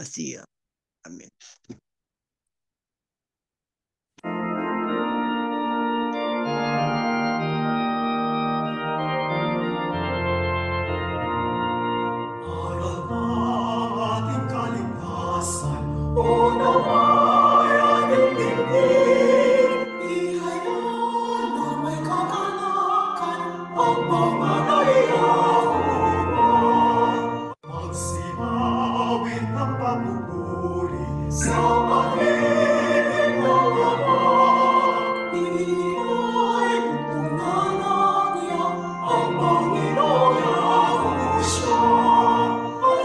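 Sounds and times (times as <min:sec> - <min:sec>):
organ playing chords: 0:04.2 - 0:43.0
group singing a hymn: 0:12.5 - 0:43.0.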